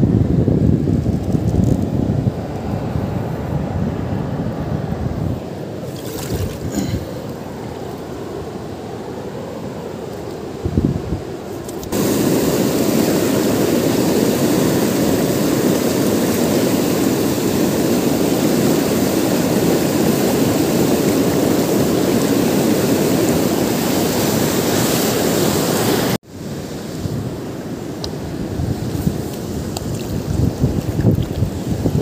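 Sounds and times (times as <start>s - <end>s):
river water rushing through rapids: 12.0s - 27.9s.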